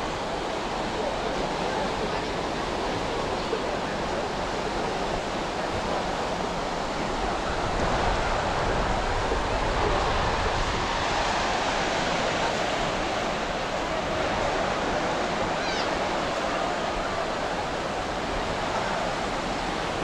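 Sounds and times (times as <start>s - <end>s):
ocean waves breaking: 0.0s - 20.0s.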